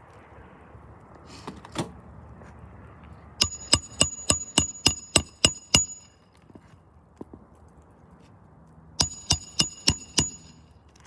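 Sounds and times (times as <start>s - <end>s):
hammer striking nail: 3.4s - 6.1s, 9.0s - 10.6s.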